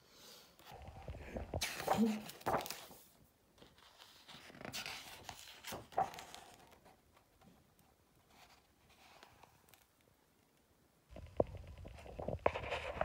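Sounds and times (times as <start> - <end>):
book pages being turned: 0.6 - 7.5, 11.2 - 13.0.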